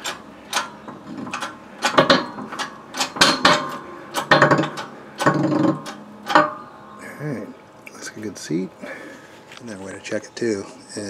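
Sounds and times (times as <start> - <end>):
metallic clicks and knocks from press: 0.0 - 6.6.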